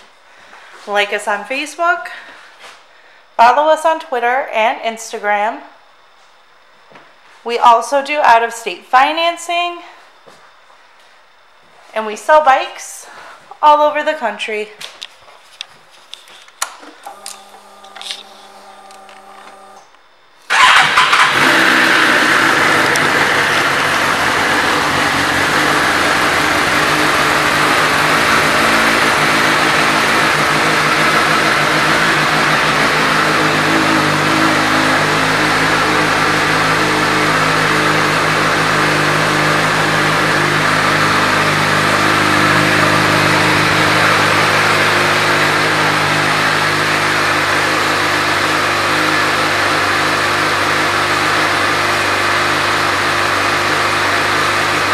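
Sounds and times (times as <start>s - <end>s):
clicks: 14.8s - 20.0s
motorcycle engine starting and idling: 16.9s - 19.9s, 20.5s - 54.9s
short hum: 17.0s - 20.3s.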